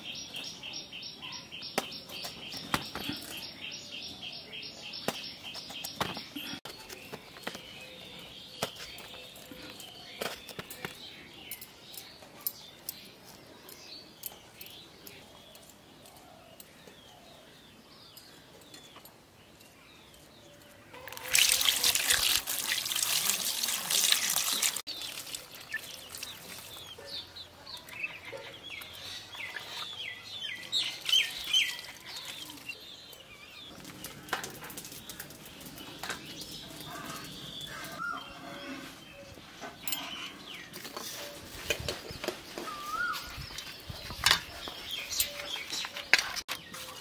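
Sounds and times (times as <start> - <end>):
bird chirping: 0.0 - 22.1, 24.5 - 47.0
water pouring and splashing: 21.1 - 27.0, 31.0 - 32.7.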